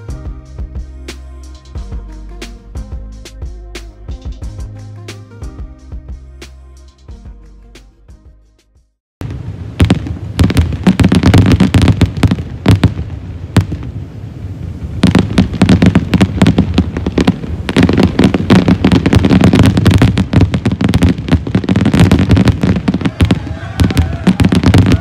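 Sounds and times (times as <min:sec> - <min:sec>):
fireworks launching and bursting: 0:09.2 - 0:25.0.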